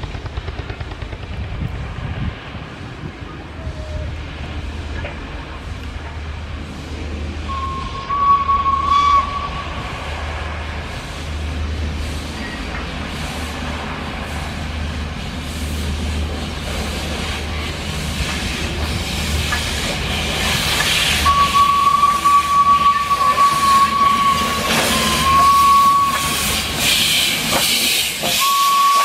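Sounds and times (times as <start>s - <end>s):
steam hissing: 3.8s - 29.0s
locomotive exhaust beats: 4.2s - 29.0s
steam whistle blast: 7.5s - 9.8s, 21.2s - 26.6s, 28.2s - 29.0s.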